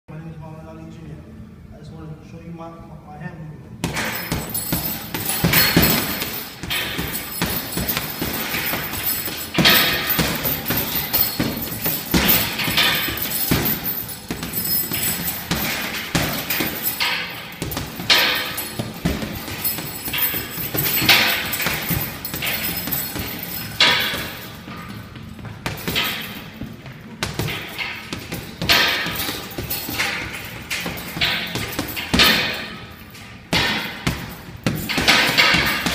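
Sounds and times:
gloves thudding on punching bag: 3.8s - 32.8s, 33.5s - 35.9s.

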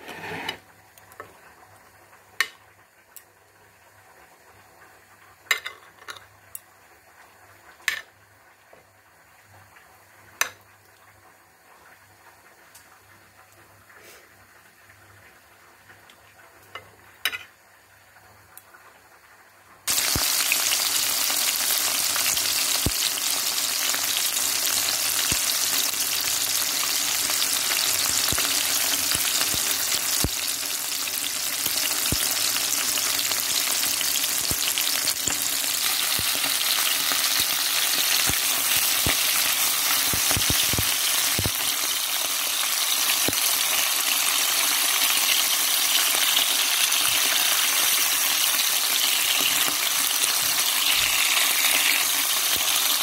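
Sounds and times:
fish sizzling in hot oil: 16.7s - 53.0s.

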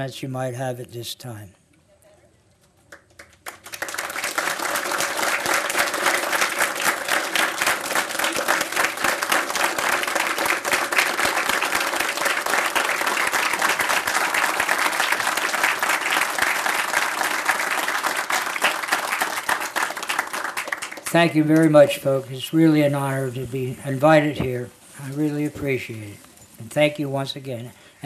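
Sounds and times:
audience applauding: 2.9s - 23.2s.

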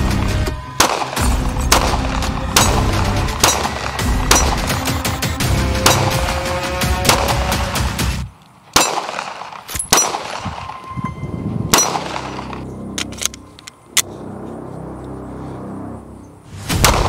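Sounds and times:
background music: 0.0s - 8.3s, 10.0s - 17.0s
pistol shots: 0.8s - 4.8s, 5.8s - 6.2s, 7.1s - 7.4s, 8.7s - 10.6s, 11.7s - 12.6s, 16.8s - 17.0s.

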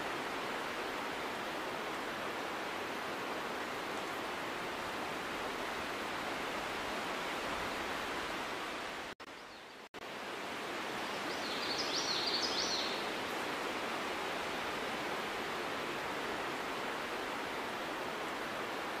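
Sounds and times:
outdoor ambient hiss: 0.0s - 19.0s.

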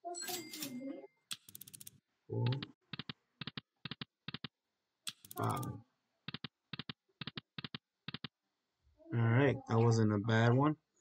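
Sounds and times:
sharp cluster of clicks: 1.3s - 5.7s, 6.3s - 8.4s.

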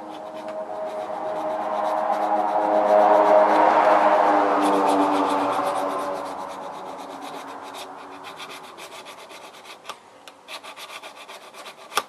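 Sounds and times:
diamond hone rubbing on blade: 4.6s - 9.9s.

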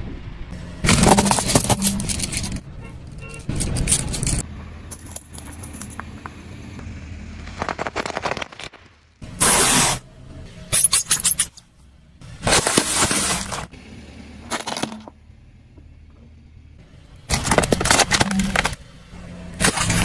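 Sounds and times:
tyre crushing small objects: 0.8s - 4.4s, 7.4s - 9.9s, 12.4s - 13.7s, 17.3s - 18.8s.

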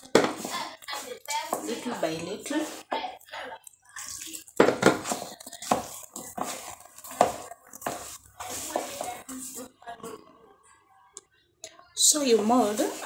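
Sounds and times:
hands squelching sticky dough: 0.0s - 9.8s.

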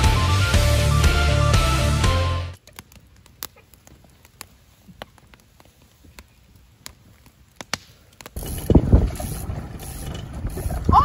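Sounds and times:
wood fire crackling: 0.0s - 11.0s
wind noise on microphone: 8.4s - 11.0s.

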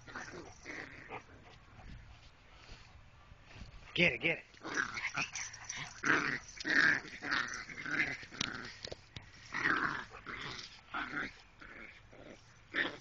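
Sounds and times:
small dogs growling in play: 0.0s - 1.8s, 4.6s - 13.0s.

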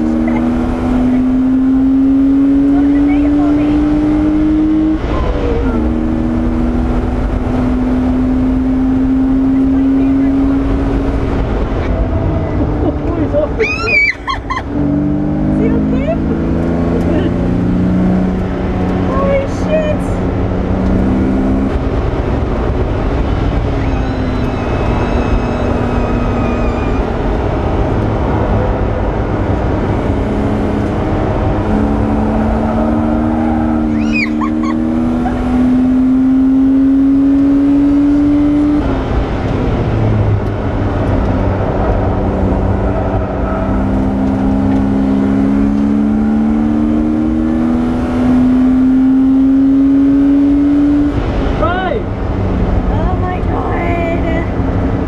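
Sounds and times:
race car engine accelerating: 0.0s - 55.0s
brief high squeal: 23.8s - 27.1s.

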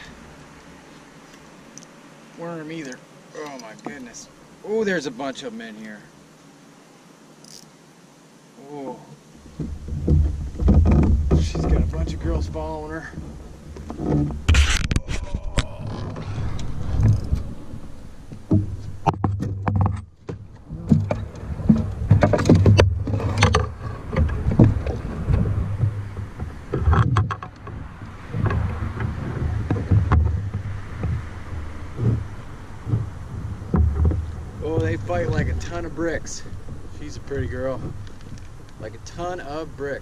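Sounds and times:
thumps against canoe hull: 9.4s - 17.5s, 18.3s - 39.6s
knocks and clicks from fishing gear: 18.4s - 33.1s, 33.7s - 35.7s.

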